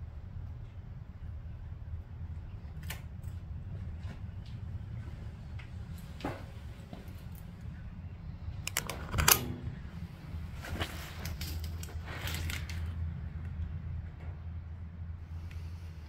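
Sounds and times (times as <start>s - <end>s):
steady low hum: 0.0s - 16.0s
handling clicks: 8.6s - 9.6s.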